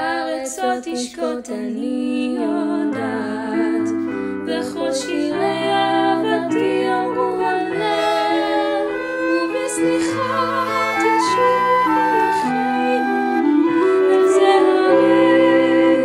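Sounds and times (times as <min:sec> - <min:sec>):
young women singing: 0:00.0 - 0:16.0
chamber ensemble playing: 0:04.5 - 0:16.0.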